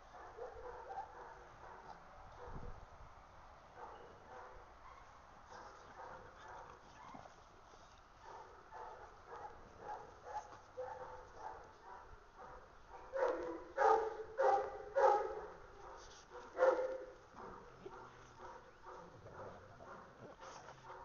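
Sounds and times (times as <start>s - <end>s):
dog barking loudly: 0.1s - 2.6s, 8.3s - 20.2s.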